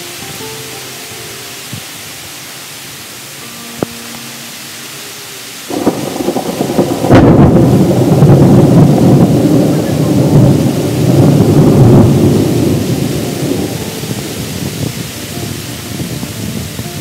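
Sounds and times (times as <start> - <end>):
rain hiss: 0.0 - 17.0
thunder crack and rumble: 5.7 - 17.0.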